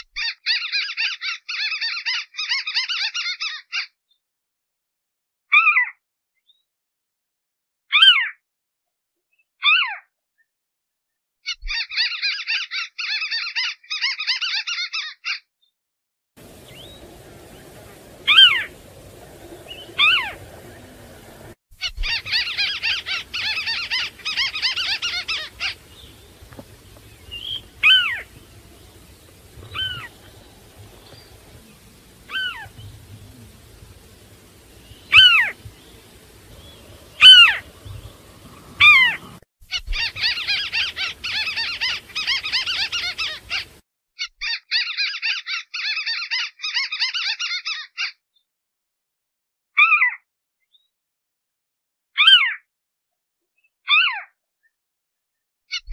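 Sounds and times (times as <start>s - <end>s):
fast dense bird chattering: 16.4s - 39.4s, 40.0s - 43.8s
bird calls sliding downward: 16.4s - 43.8s.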